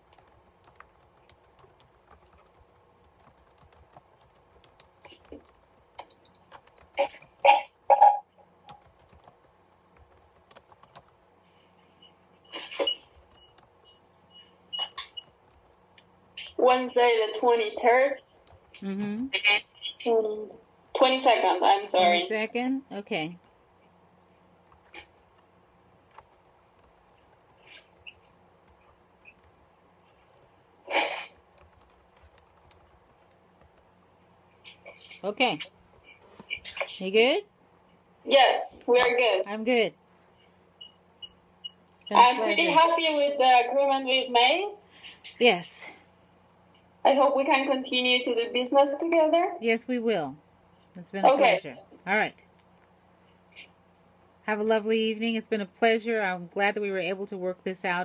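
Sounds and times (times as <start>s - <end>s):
faint clicks and ticks: 0.0s - 7.4s, 18.2s - 19.9s, 24.6s - 33.9s
typing on computer keyboard: 0.0s - 7.4s, 8.7s - 11.2s, 13.2s - 13.7s, 14.9s - 15.8s, 18.3s - 19.2s, 24.6s - 25.4s, 26.1s - 30.5s, 31.3s - 33.9s.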